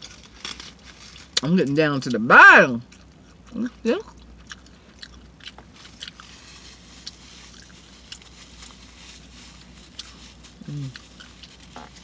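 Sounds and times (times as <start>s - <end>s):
person chewing food: 2.8s - 12.0s.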